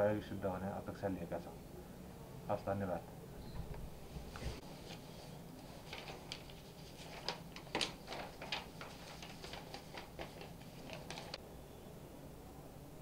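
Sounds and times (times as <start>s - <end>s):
paper rustling: 4.3s - 11.4s.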